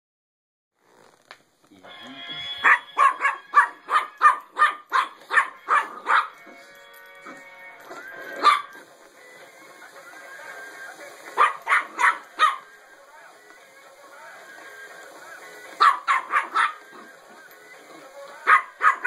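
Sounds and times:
tinny electronic toy song: 1.7s - 19.0s
puppy barking sharp yaps: 2.6s - 6.4s, 8.4s - 8.8s, 11.4s - 12.6s, 15.8s - 16.8s, 18.5s - 19.0s.

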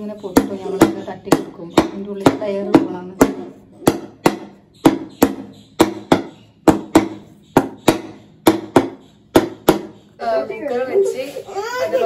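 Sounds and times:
knocks on metal pot: 0.2s - 10.0s.

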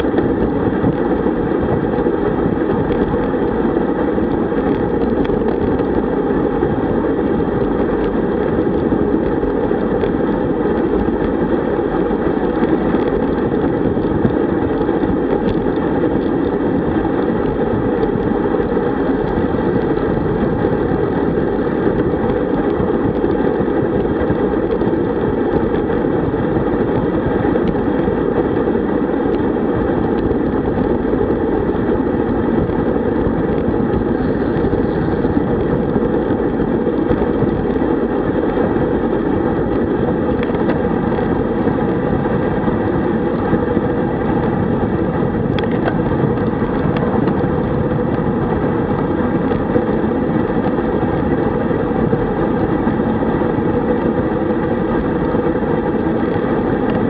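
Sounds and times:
wind rushing over microphone: 0.0s - 57.0s.

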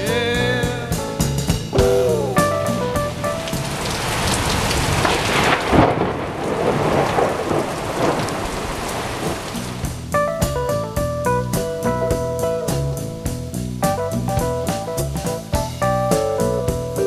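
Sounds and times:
guitar and keyboard music: 0.0s - 4.4s, 9.6s - 17.0s
heavy rain: 1.8s - 10.1s
thunderclap rumbling: 1.8s - 10.1s.

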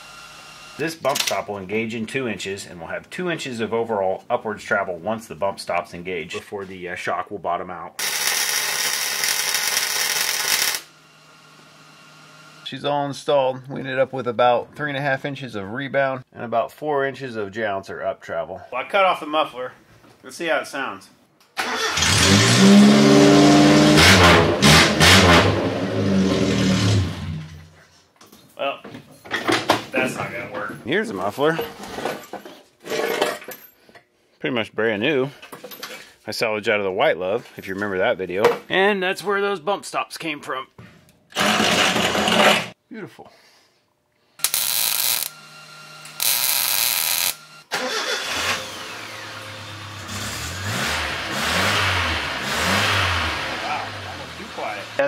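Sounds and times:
loud engine revving: 21.8s - 27.4s, 48.2s - 55.0s.

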